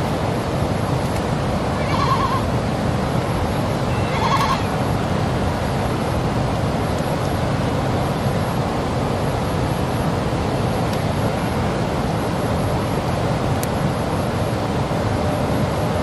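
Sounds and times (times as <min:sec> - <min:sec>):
steady rushing noise: 0:00.0 - 0:16.0
animal bleat: 0:01.8 - 0:02.4, 0:03.9 - 0:04.7.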